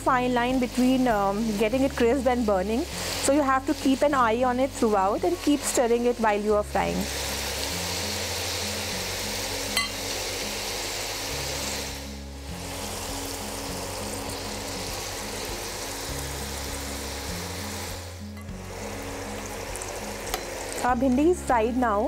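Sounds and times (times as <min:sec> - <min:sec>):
okra sizzling in hot oil: 0:00.0 - 0:22.0
background music with bass line: 0:06.6 - 0:21.8.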